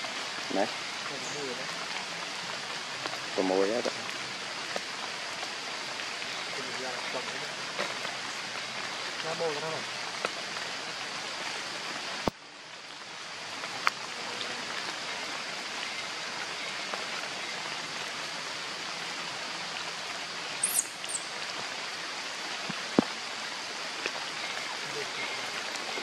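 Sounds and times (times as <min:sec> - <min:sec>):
rain hissing in forest: 0:00.0 - 0:26.0
high falling chirps: 0:20.6 - 0:21.3.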